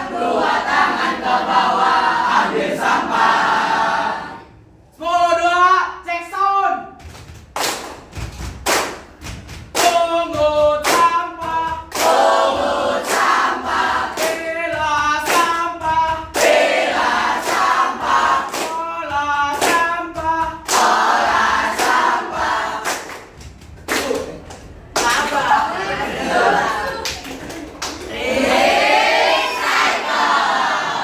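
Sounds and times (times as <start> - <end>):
students singing and chanting: 0.0 - 4.5, 9.9 - 23.2, 25.0 - 27.2, 28.0 - 31.0
hand claps: 7.0 - 25.6, 26.8 - 28.2.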